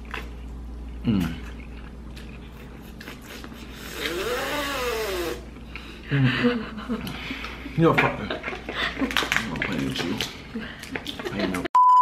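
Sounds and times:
person humming mmm: 1.0 - 1.6, 3.0 - 5.5.

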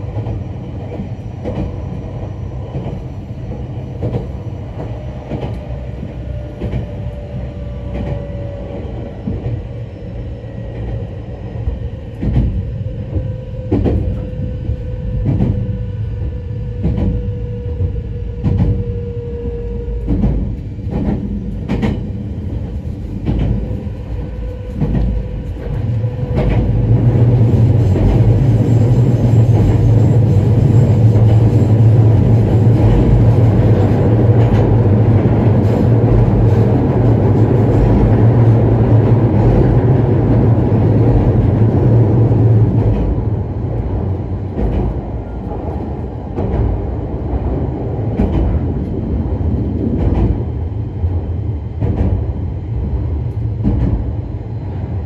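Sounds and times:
train running rumble: 0.0 - 55.0.

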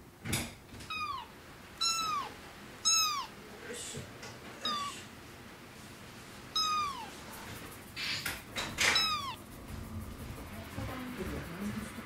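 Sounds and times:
kitten meowing: 0.9 - 3.4, 4.6 - 5.0, 6.5 - 7.1, 8.8 - 9.4.

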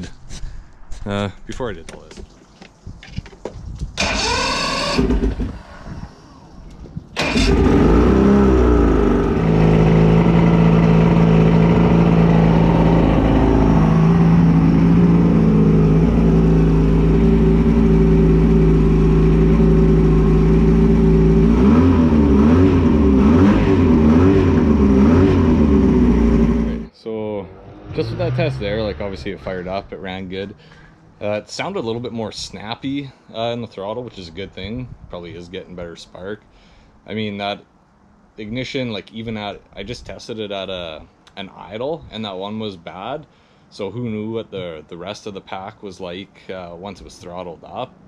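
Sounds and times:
outboard motor cranking: 4.0 - 6.5, 7.2 - 10.5
outboard motor revving: 4.0 - 6.5, 7.2 - 26.9
outboard motor idling: 7.2 - 21.4.

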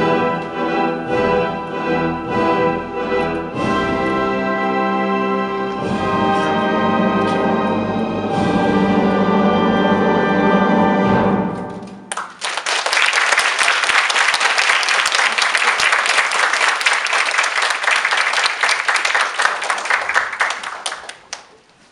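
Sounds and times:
orchestral music: 0.0 - 12.2
audience applause: 12.1 - 21.6.

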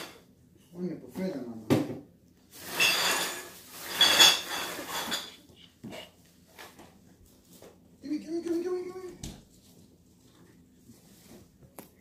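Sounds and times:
rustling with metallic clinking: 2.5 - 5.4.

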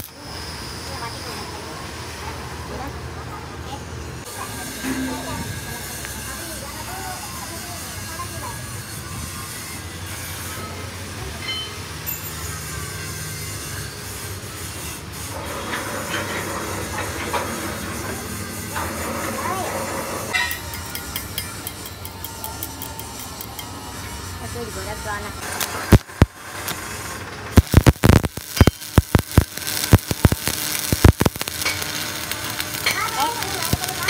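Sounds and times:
rough noisy layer: 4.2 - 10.6, 15.2 - 34.0
welding arc crackling and popping: 24.8 - 34.0.

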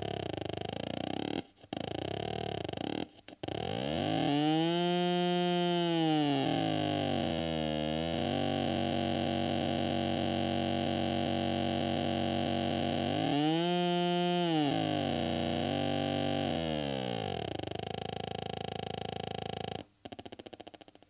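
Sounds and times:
distorted buzzy electronic tones: 6.2 - 13.6, 14.4 - 19.8.

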